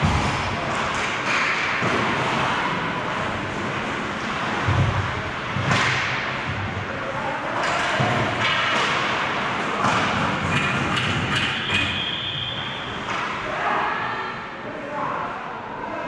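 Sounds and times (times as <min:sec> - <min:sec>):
ice rink noise: 0:00.0 - 0:16.0
sharp hockey knocks: 0:04.6 - 0:06.6, 0:07.6 - 0:12.0.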